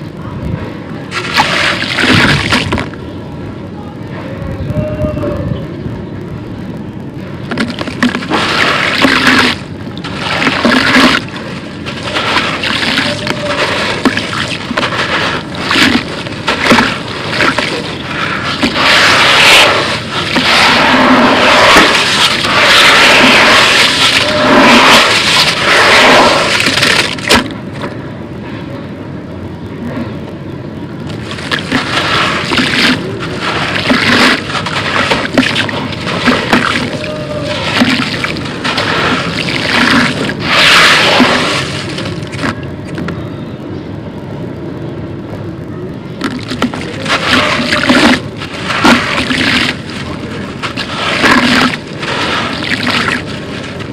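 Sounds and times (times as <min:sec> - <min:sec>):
splashing water: 0:01.1 - 0:02.9, 0:07.5 - 0:27.5, 0:31.2 - 0:42.6, 0:46.2 - 0:53.9
concrete crunching: 0:01.1 - 0:03.0, 0:07.5 - 0:27.6, 0:31.1 - 0:43.1, 0:46.2 - 0:53.9.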